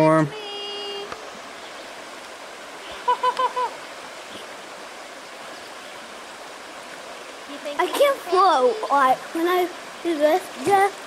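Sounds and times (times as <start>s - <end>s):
creek water flowing: 0.0s - 11.0s.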